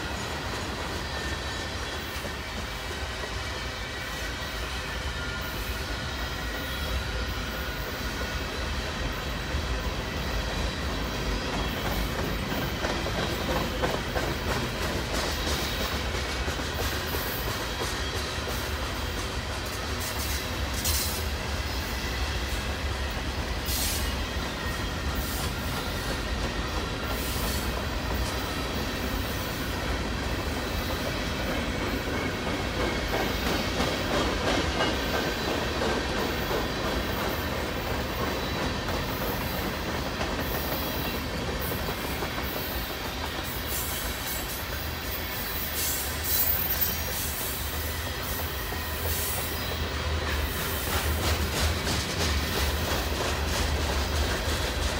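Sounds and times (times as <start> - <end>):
high squeal of train wheels: 0.0 - 54.9
train wheels rumbling on rails: 0.0 - 54.9
wheels clicking over rail joints: 11.5 - 21.2.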